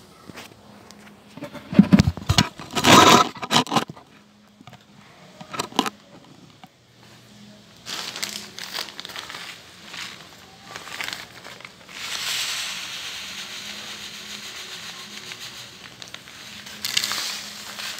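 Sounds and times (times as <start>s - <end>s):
phone scraping on tile floor: 1.0s - 4.1s, 5.4s - 6.5s
plastic bag crinkling: 7.8s - 17.9s.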